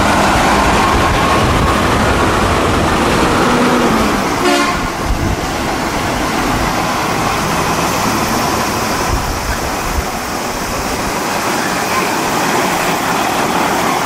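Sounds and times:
heavy trucks driving past: 0.0 - 14.0.

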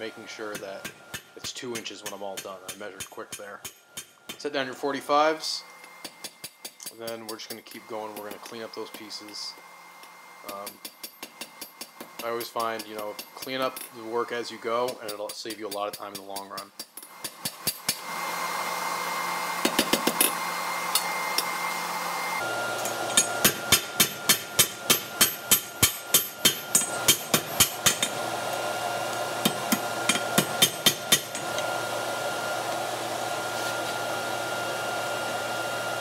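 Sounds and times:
hammer striking on anvil: 0.5 - 4.4, 22.8 - 28.2, 29.4 - 31.7.

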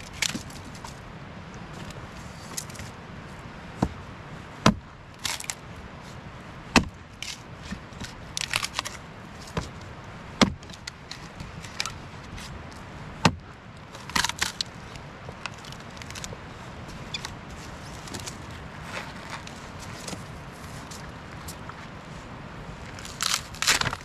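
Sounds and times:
split wood rustling: 0.0 - 22.0, 22.7 - 24.0
axe chopping log: 4.6 - 5.6, 6.7 - 9.7, 10.4 - 10.8, 13.2 - 13.4.

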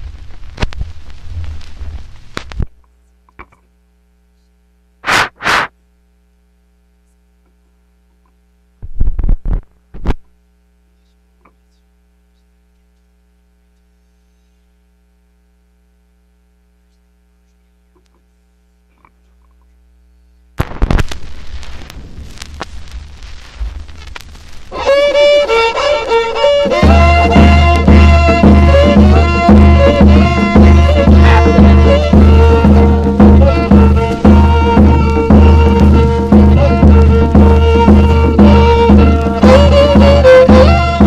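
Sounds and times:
loud rough noise: 0.0 - 2.7, 5.0 - 5.7, 20.6 - 41.0
low electrical hum: 0.0 - 41.0
loud short bursts: 5.0 - 5.7.

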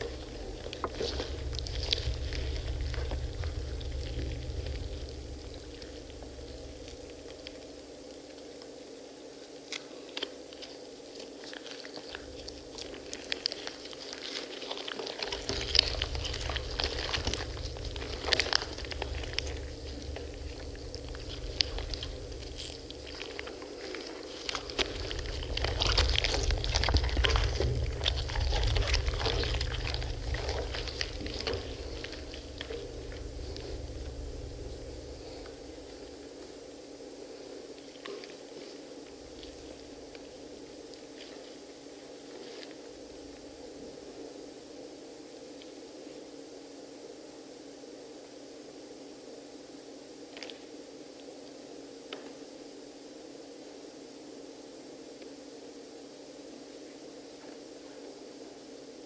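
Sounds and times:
low rumble: 0.0 - 8.0, 15.2 - 38.2
seeds and rind crackling: 0.0 - 8.8, 9.5 - 36.5
hands squelching pomegranates: 10.6 - 36.0.

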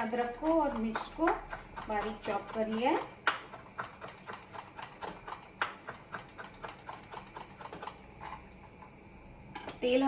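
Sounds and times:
knife chopping on wooden board: 0.0 - 7.9.

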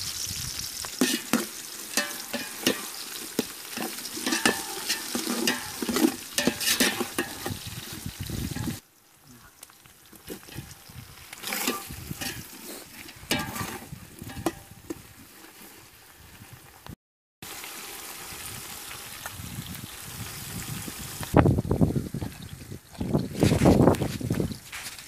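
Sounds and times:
utensil scraping in pan: 0.0 - 8.8, 10.1 - 16.0
food sizzling: 0.0 - 25.0.

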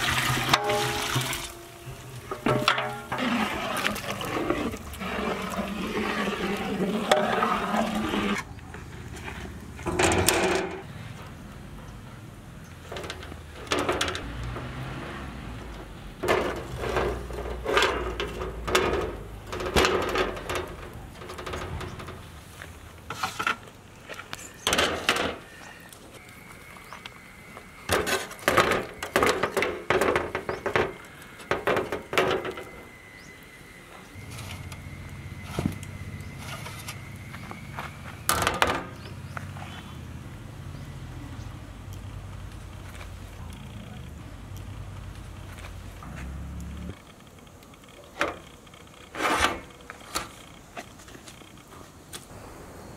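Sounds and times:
cloth scraping over steel tray: 1.9 - 10.8, 49.1 - 49.7.

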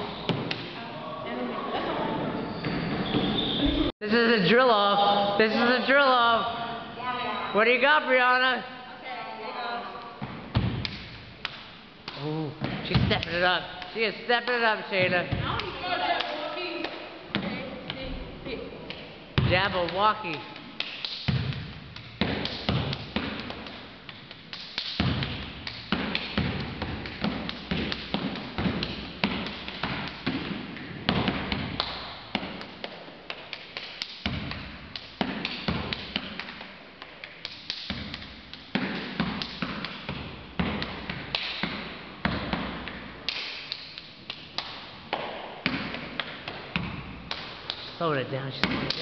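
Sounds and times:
hand claps and body slaps: 0.3 - 0.8, 10.0 - 14.7, 15.5 - 17.1, 18.8 - 48.0, 48.6 - 49.0.

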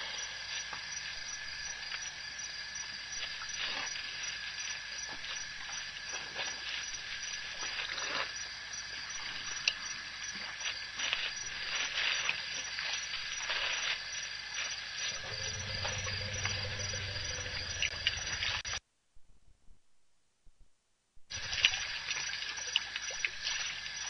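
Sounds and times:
insect chirring: 0.0 - 18.8, 21.3 - 24.0
low hum: 15.0 - 21.9.

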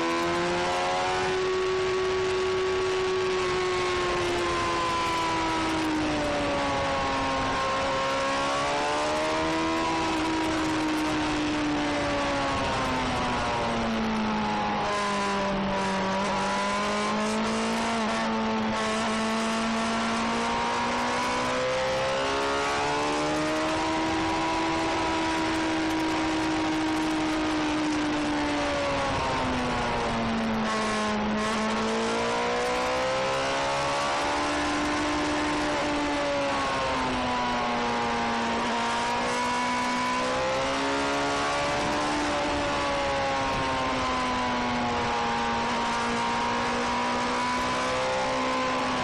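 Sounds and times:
wind rush on microphone: 22.8 - 31.8.

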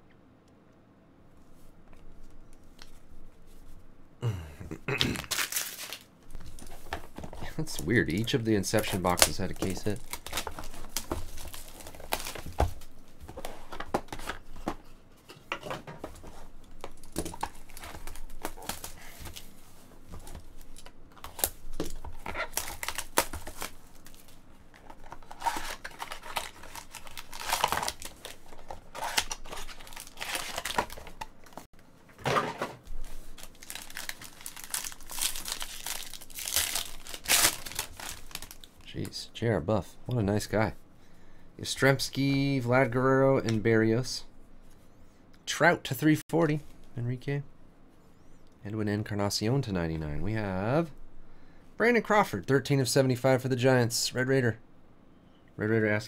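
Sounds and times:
shrink wrap crinkling and tearing: 5.0 - 13.4, 16.6 - 19.5, 20.2 - 31.7, 32.9 - 39.1
foil pack crinkling: 5.1 - 14.4, 16.7 - 19.5, 20.2 - 31.7, 32.9 - 38.9.

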